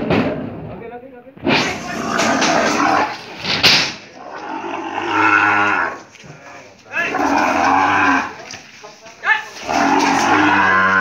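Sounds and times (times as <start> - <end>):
cattle mooing: 4.2 - 6.0, 7.0 - 8.4, 9.6 - 11.0.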